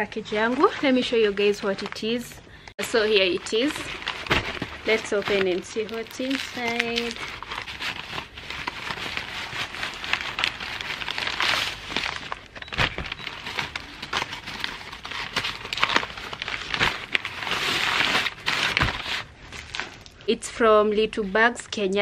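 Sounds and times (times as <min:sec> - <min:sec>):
wrapping rustling and crinkling: 0:00.0 - 0:20.2.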